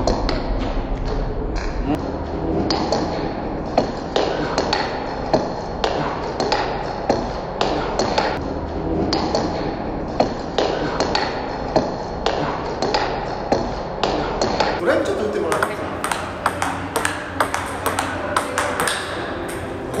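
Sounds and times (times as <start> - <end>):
table tennis ball clicking: 15.5 - 20.0.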